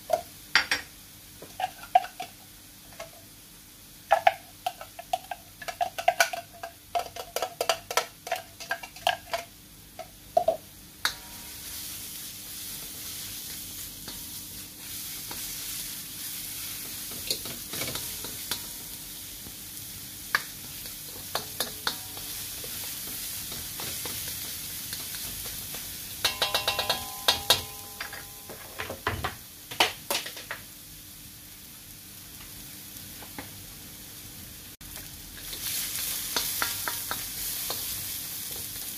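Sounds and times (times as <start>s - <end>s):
meat sizzling in hot oil: 0.0s - 26.4s, 29.5s - 38.9s
spatula stirring and scraping: 11.1s - 18.8s.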